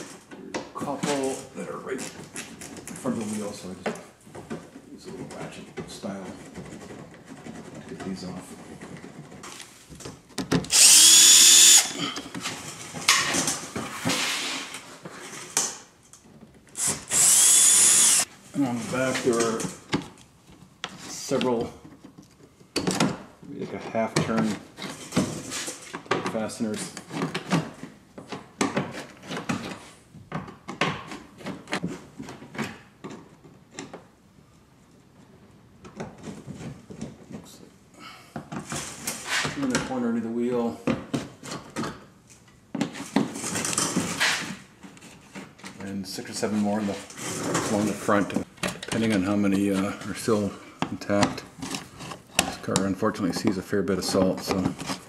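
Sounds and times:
fasteners clicking and scraping: 0:00.0 - 0:13.8, 0:41.0 - 0:55.0
electric driver whining: 0:10.7 - 0:12.0, 0:16.8 - 0:18.2.

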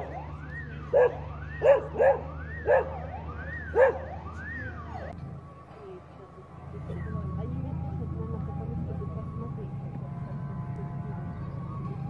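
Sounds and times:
dog barking: 0:00.9 - 0:03.1, 0:03.7 - 0:04.1.

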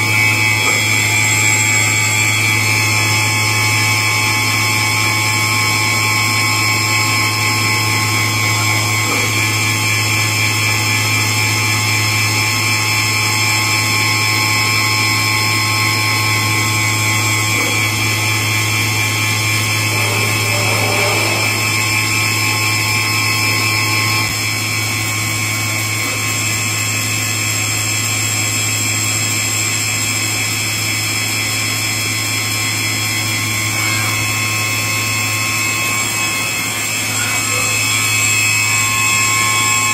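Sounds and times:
grinder machine humming and whining: 0:00.0 - 0:39.9.

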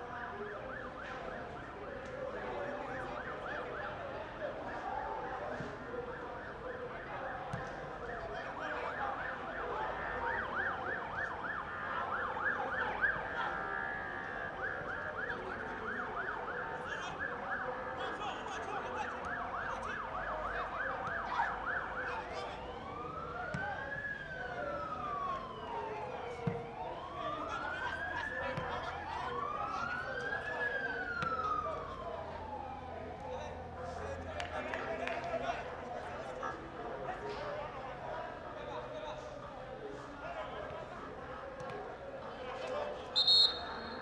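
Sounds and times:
siren yelping and wailing: 0:00.0 - 0:33.9.

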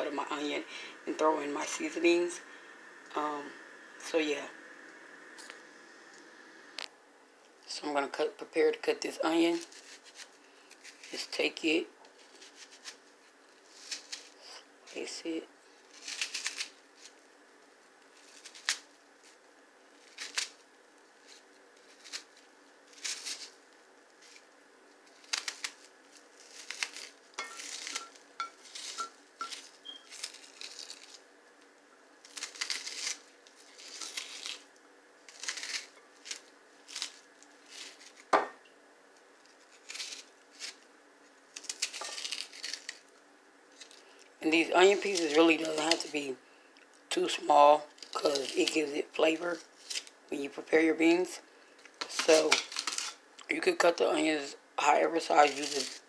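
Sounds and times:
knock on cutting board: 0:38.3 - 0:38.6.

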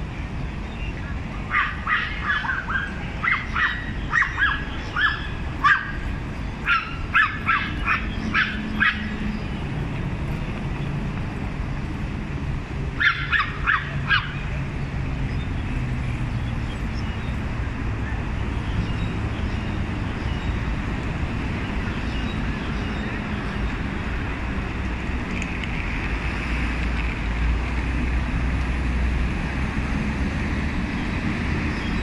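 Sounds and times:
small dogs yapping: 0:01.5 - 0:09.2, 0:13.0 - 0:14.4.

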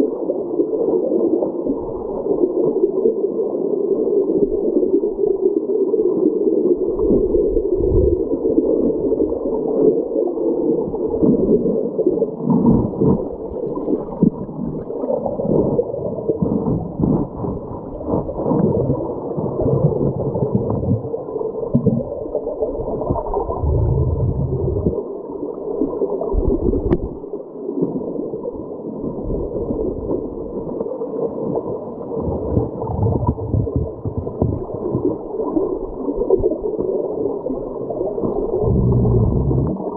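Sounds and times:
underwater gurgling rush: 0:00.0 - 0:39.9
low thumps of current: 0:32.2 - 0:35.2.

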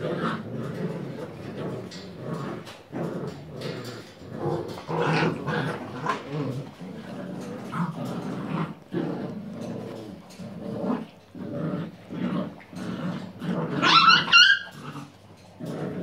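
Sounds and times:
puppies growling: 0:00.0 - 0:16.0
puppy yips: 0:13.8 - 0:14.7.

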